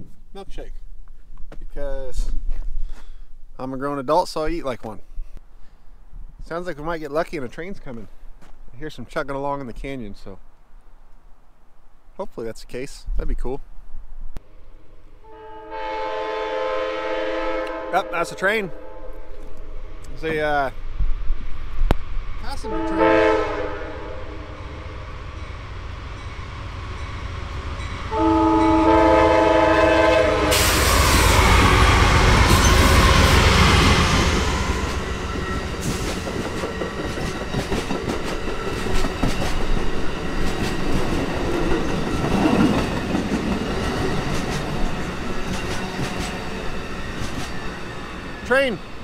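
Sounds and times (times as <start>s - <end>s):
train air horn: 15.2s - 19.4s, 22.6s - 24.9s, 28.0s - 35.2s
locomotive passing with rush: 19.6s - 49.0s
train wheels clicking over rail joints: 34.6s - 48.4s.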